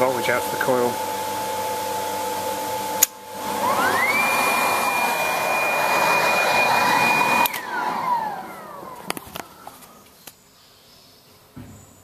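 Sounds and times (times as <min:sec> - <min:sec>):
fan motor whining: 0:00.0 - 0:10.1
contactor clicking: 0:07.4 - 0:09.9.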